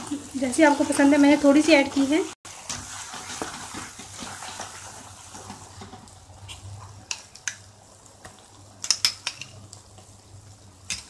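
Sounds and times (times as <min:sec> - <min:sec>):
faint sizzle: 0:00.0 - 0:11.0
spatula stirring thick gravy: 0:02.5 - 0:06.7
utensil clicking against pan: 0:08.8 - 0:09.6.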